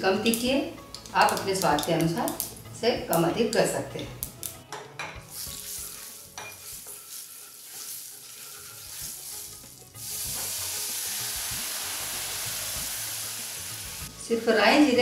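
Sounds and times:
spices sizzling in hot oil: 0.2 - 3.3, 5.2 - 15.0
loud steady sizzle: 5.3 - 15.0
lentils poured into hot oil: 7.0 - 14.1.

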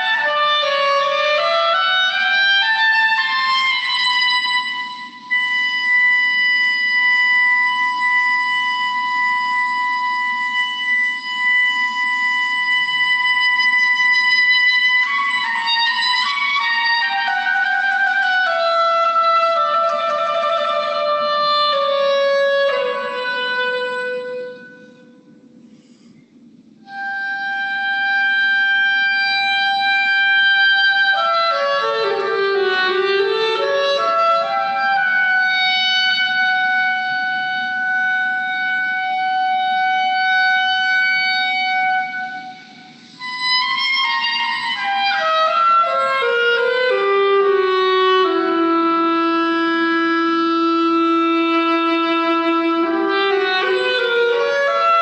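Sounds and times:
solo woodwind melody: 0.0 - 55.0.

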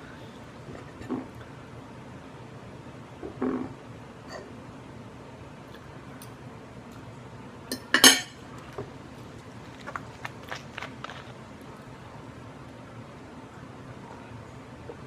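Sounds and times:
cutlery clattering on a plate: 7.7 - 8.4.

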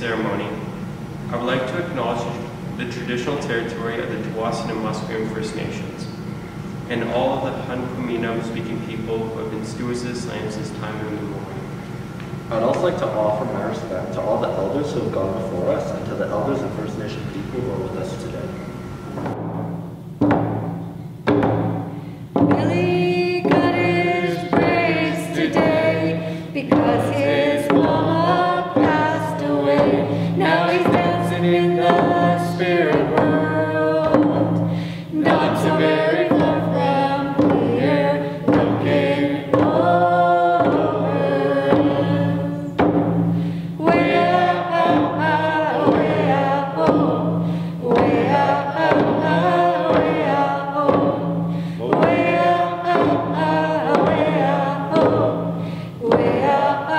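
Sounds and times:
frame hand drums beating: 19.0 - 56.9
voices singing together: 22.3 - 56.9.

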